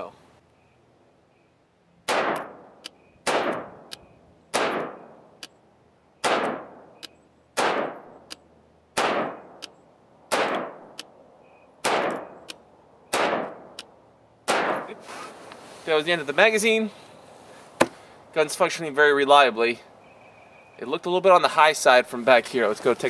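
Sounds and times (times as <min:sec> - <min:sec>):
pistol gunshots: 0:02.0 - 0:03.9, 0:04.5 - 0:05.2, 0:06.2 - 0:06.9, 0:07.6 - 0:08.2, 0:08.9 - 0:09.6, 0:10.3 - 0:11.0, 0:11.8 - 0:12.4, 0:13.1 - 0:13.7, 0:14.4 - 0:14.9.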